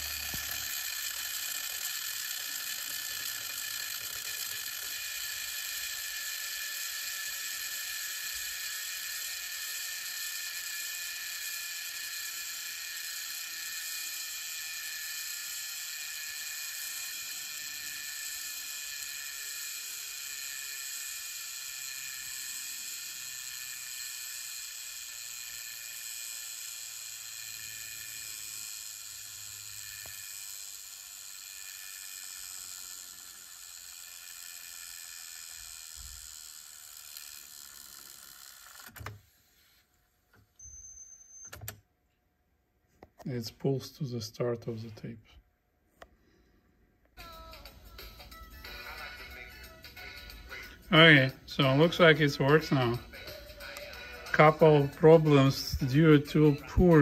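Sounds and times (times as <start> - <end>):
cassette deck fast-rewinding: 0.0 - 39.9, 47.2 - 57.0.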